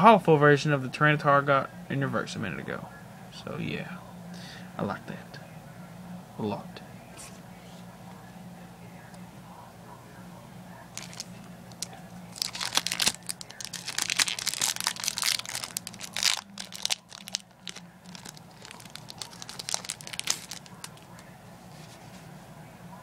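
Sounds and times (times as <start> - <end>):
foil pack crinkling and tearing: 11.0 - 21.3.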